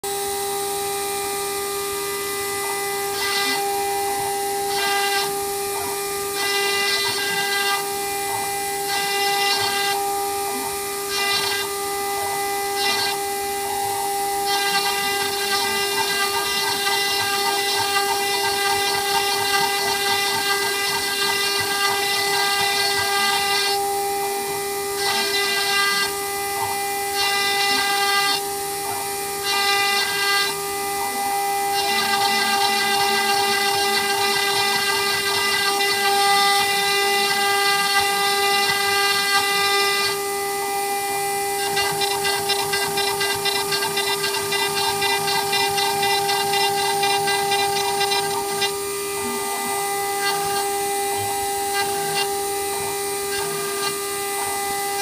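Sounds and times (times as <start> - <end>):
engraving spindle whining: 0.0 - 55.0
bit cutting hiss: 8.7 - 40.2, 41.6 - 52.4.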